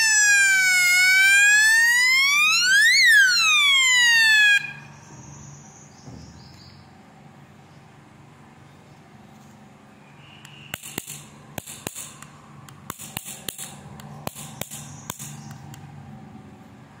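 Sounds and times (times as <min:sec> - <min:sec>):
sharp plastic clicks: 0:10.4 - 0:15.9.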